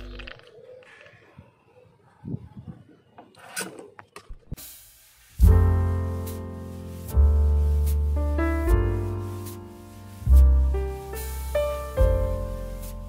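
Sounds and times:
short hiss: 4.6s - 12.1s.

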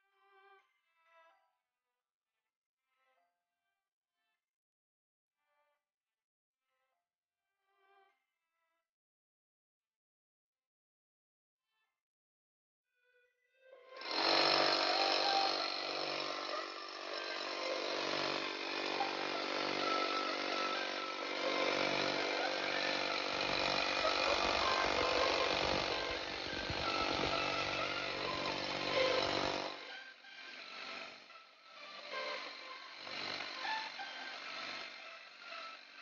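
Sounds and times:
rotary hammer drilling concrete: 14.0s - 36.0s.

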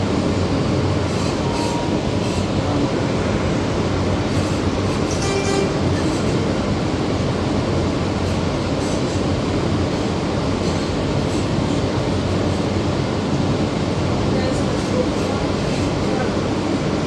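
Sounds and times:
subway train wheels rumbling: 0.0s - 17.0s
train wheel squeal: 1.2s - 2.5s.

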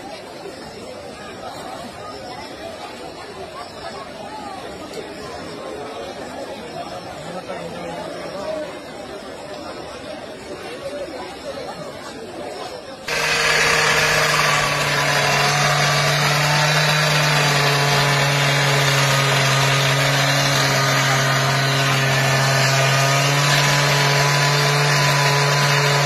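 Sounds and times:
engine humming with hiss: 13.1s - 26.0s.

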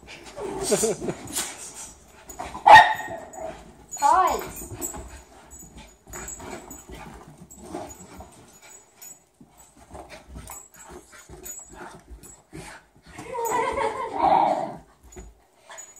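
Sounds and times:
dog whining: 13.2s - 14.9s.

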